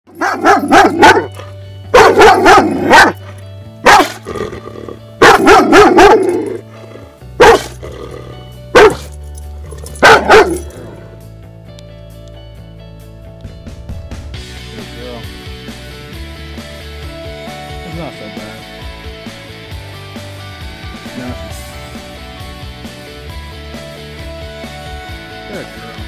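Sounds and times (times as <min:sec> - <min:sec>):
dog barking: 0:00.1 - 0:04.2, 0:05.2 - 0:06.6, 0:07.4 - 0:07.8, 0:08.7 - 0:09.1, 0:10.0 - 0:10.7
background music: 0:00.1 - 0:26.0.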